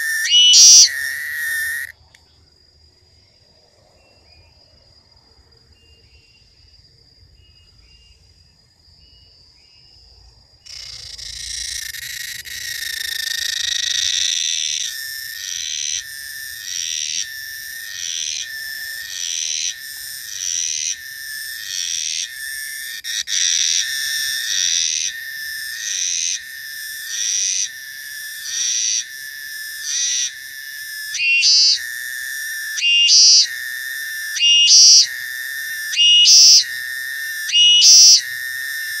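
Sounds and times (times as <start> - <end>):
faint high chirps: 0.0 - 1.9, 30.8 - 31.8, 32.6 - 36.8, 37.4 - 39.0
cicada pulsing buzz: 0.0 - 39.0.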